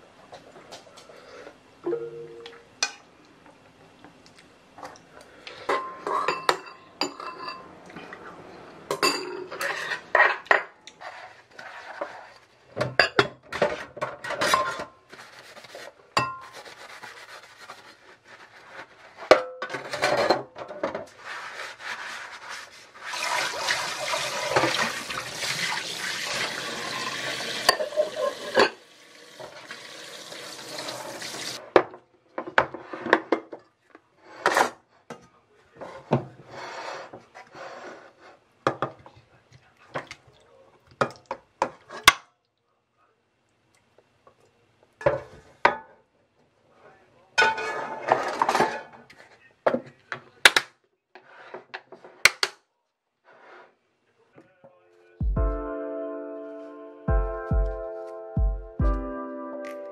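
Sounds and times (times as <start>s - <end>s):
dishes and utensils clinking: 5.5s - 8.1s, 8.9s - 10.8s, 12.8s - 15.0s, 19.3s - 21.1s, 26.8s - 29.8s, 47.4s - 49.0s
tap water pouring into sink: 23.1s - 31.6s.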